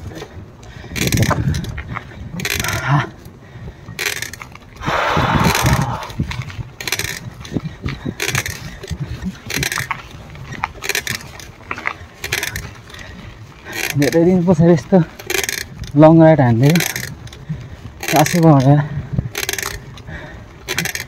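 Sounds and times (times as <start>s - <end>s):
mountain bike rattling over rough ground: 0.0s - 21.0s
short rush of noise: 4.8s - 6.4s.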